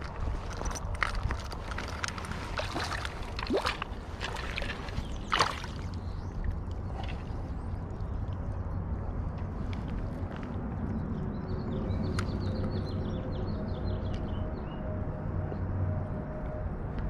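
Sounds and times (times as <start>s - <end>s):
river water splashing: 0.0s - 9.0s
rumble of current: 0.0s - 17.0s
wind: 0.0s - 17.0s.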